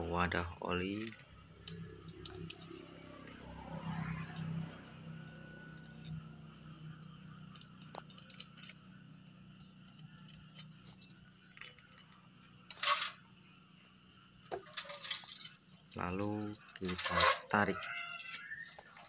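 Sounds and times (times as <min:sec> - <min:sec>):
light metallic clinks of bolts: 0:00.0 - 0:04.5, 0:07.1 - 0:13.2
metal clatter: 0:07.5 - 0:09.4, 0:10.0 - 0:13.2, 0:14.4 - 0:19.0.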